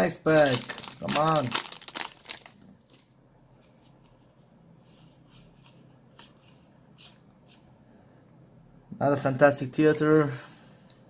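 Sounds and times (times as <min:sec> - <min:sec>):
foil wrapper rustling: 0:00.2 - 0:03.1.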